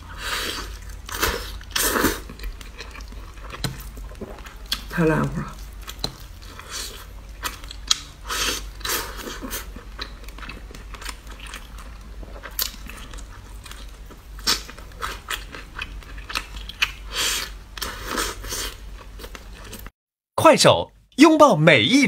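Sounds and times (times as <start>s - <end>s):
chewing and lip smacking: 0.6s - 4.9s, 5.5s - 17.9s.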